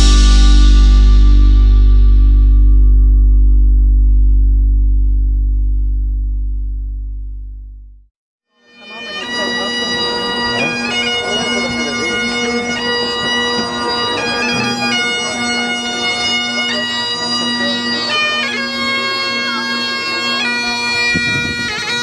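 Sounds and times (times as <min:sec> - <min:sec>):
bagpipe drone and melody: 0:08.6 - 0:22.0.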